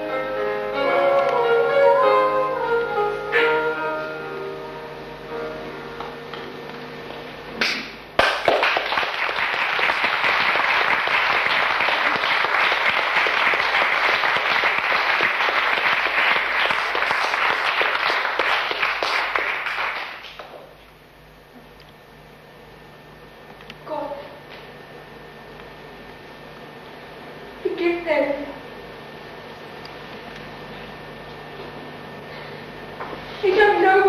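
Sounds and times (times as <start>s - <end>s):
audience clapping: 7.6s - 20.9s.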